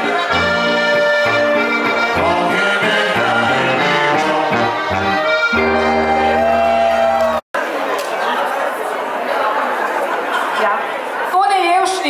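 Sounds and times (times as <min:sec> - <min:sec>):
accordion dance-band music: 0:00.0 - 0:07.4.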